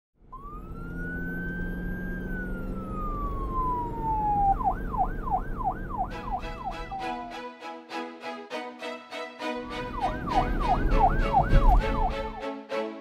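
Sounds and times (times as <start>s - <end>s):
police siren wailing and yelping: 0.3s - 7.4s, 9.6s - 12.4s.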